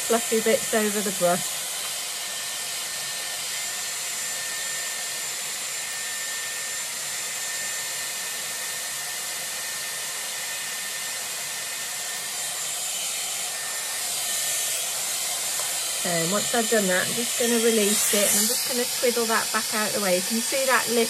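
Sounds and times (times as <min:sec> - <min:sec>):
hair dryer rushing air: 0:00.0 - 0:21.0
high motor whine: 0:12.1 - 0:21.0.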